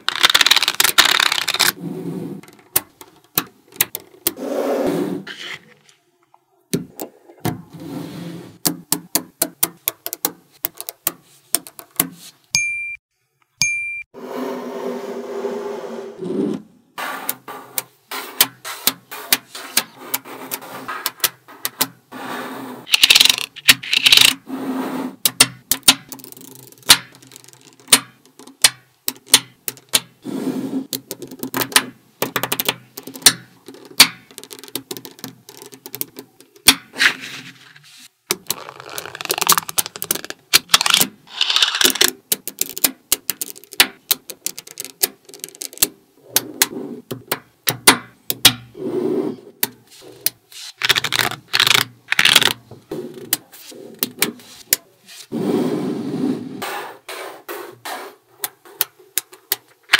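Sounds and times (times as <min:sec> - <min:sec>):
magnetic balls clicking together: 0:00.0 - 0:01.8, 0:08.6 - 0:12.1, 0:22.9 - 0:24.4, 0:25.2 - 0:30.2, 0:30.9 - 0:36.9, 0:38.3 - 0:48.7, 0:49.6 - 0:52.6, 0:58.4 - 0:59.9
card scraping across balls: 0:00.0 - 0:05.9, 0:07.6 - 0:08.7, 0:09.8 - 0:12.4, 0:14.2 - 0:25.6, 0:29.2 - 0:31.7, 0:32.3 - 0:47.4, 0:48.5 - 0:59.9.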